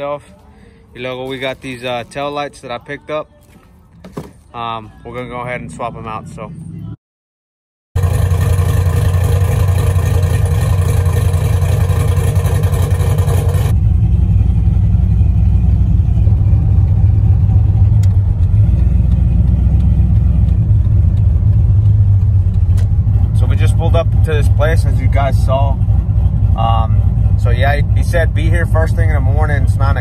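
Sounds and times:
engine and road drone in cab: 0:08.0 - 0:30.0
pickup truck engine running: 0:08.0 - 0:30.0.

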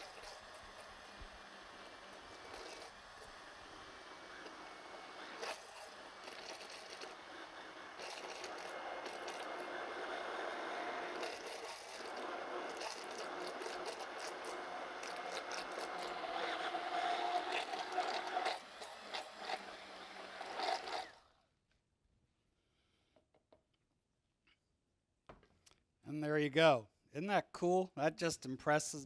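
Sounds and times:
stick blender running: 0:00.0 - 0:21.4.

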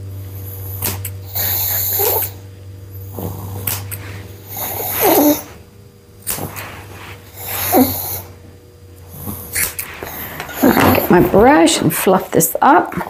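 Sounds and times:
steady low hum: 0:00.0 - 0:13.0
small dog snorting: 0:00.7 - 0:02.4, 0:03.0 - 0:05.6, 0:06.3 - 0:08.3.

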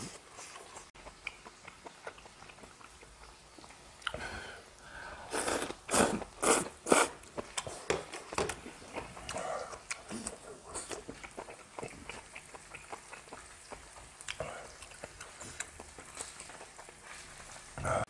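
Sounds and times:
quiet chewing: 0:00.0 - 0:18.0
loud noodle slurps: 0:05.3 - 0:07.8.

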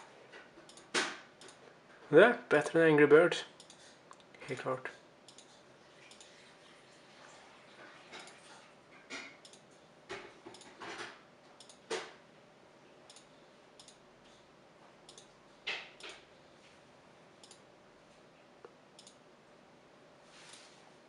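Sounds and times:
computer mouse clicking: 0:00.7 - 0:01.6, 0:05.3 - 0:05.5, 0:09.4 - 0:09.6, 0:11.6 - 0:11.8, 0:13.1 - 0:14.0, 0:15.1 - 0:15.4, 0:17.4 - 0:17.6, 0:19.0 - 0:19.2.

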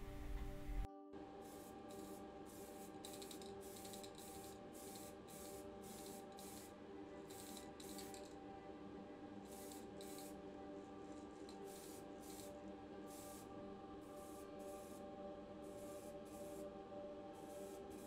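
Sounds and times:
steady low hum: 0:00.0 - 0:00.9
aerosol can spraying in hissing bursts: 0:01.4 - 0:08.4, 0:09.5 - 0:10.4, 0:11.2 - 0:16.7, 0:17.3 - 0:18.0.

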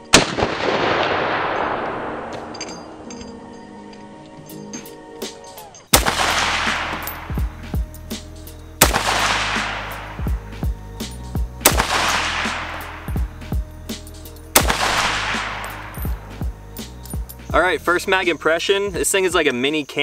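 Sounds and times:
rifle shots with echo: 0:00.0 - 0:03.1, 0:05.9 - 0:07.6, 0:08.8 - 0:10.4, 0:11.6 - 0:13.3, 0:14.5 - 0:16.2
background music: 0:00.0 - 0:19.6.

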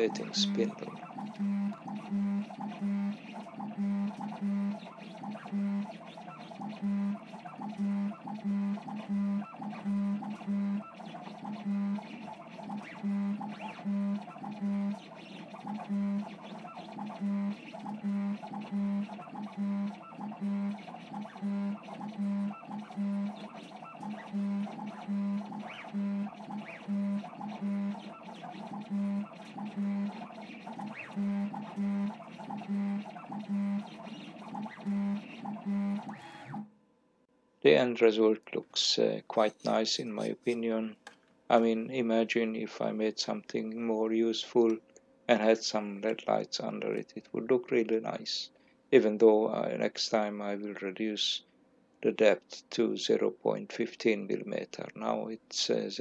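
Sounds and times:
stepper motors humming: 0:00.0 - 0:36.7.

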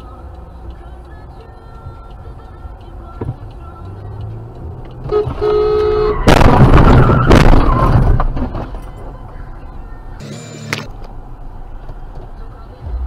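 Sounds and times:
car road noise: 0:00.0 - 0:13.0
car horn blaring: 0:05.0 - 0:06.5
loud collision crash: 0:06.2 - 0:08.6.

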